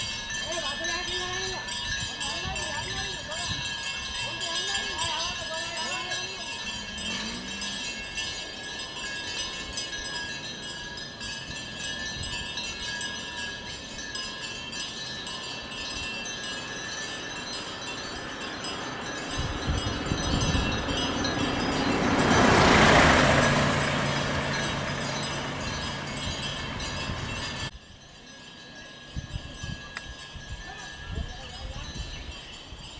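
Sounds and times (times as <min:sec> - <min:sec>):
cattle bells tinkling: 0:00.0 - 0:32.9
vehicle engine: 0:04.2 - 0:15.8, 0:16.4 - 0:27.7.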